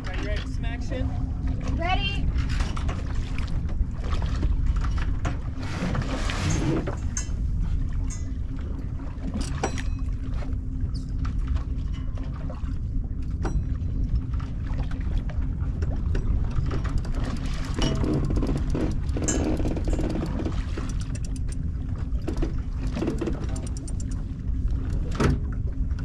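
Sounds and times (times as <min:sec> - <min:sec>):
sailboat low rumble and hum: 0:00.0 - 0:26.0
rigging clicks and knocks: 0:15.8 - 0:26.0.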